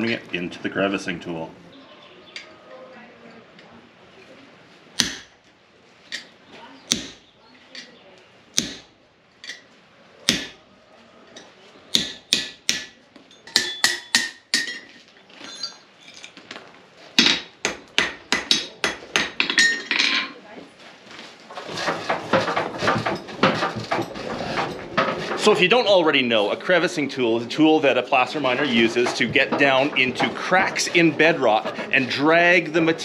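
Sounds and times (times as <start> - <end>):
hammer striking iron on anvil: 5.0 - 5.3, 6.9 - 7.2, 8.6 - 8.9, 10.3 - 10.6, 11.9 - 14.9, 17.2 - 19.9.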